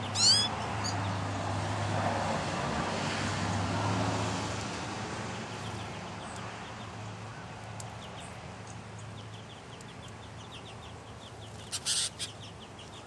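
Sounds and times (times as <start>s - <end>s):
finches chirping: 0.0s - 1.2s, 9.0s - 13.0s.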